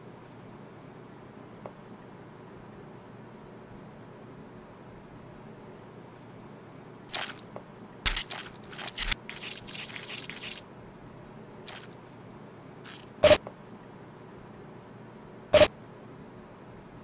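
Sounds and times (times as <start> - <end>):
modelling clay squishing and crunching: 7.1 - 7.5, 8.1 - 10.6.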